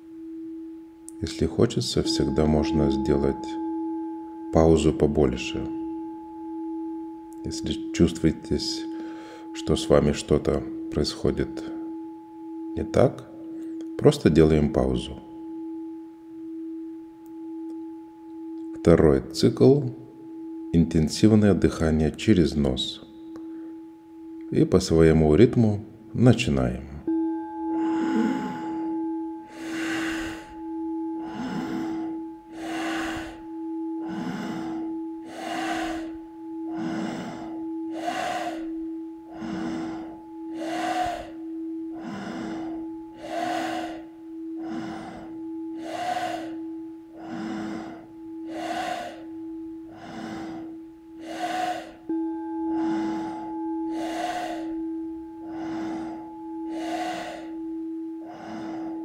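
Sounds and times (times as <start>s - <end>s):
singing bowl ringing: 0.0s - 59.0s
forceful nasal breathing: 29.5s - 59.0s.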